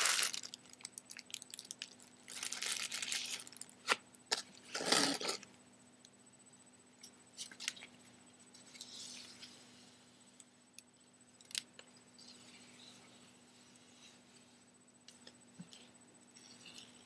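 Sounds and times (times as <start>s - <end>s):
crinkly rustle: 0.0s - 3.7s.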